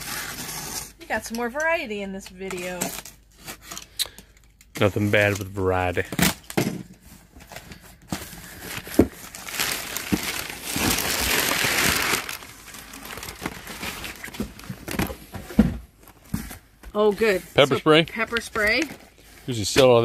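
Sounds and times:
packing material crinkling: 8.2s - 15.0s.

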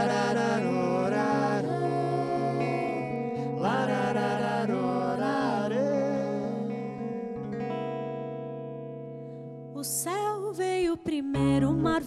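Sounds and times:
men singing: 0.0s - 6.9s
guitar: 0.0s - 12.0s.

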